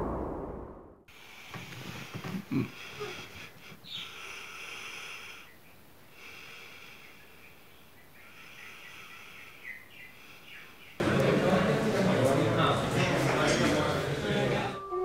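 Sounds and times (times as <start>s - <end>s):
person breathing in sleep: 1.1s - 7.6s, 8.2s - 10.8s.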